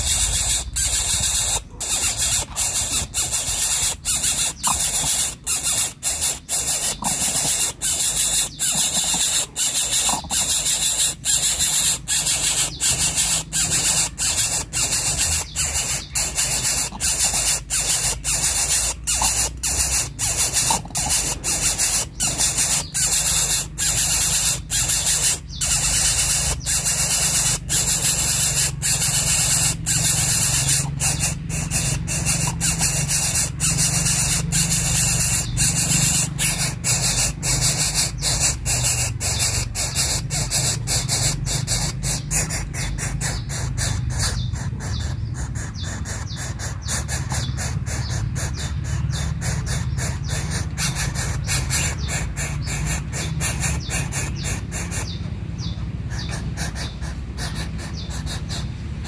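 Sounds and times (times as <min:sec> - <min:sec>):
bird nestling hissing: 0:00.0 - 0:44.9.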